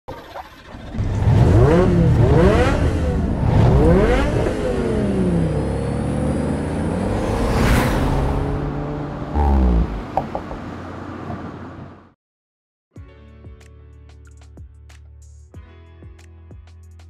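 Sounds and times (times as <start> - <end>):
car engine accelerating: 0.6 - 12.1
rushing whoosh: 6.8 - 10.6.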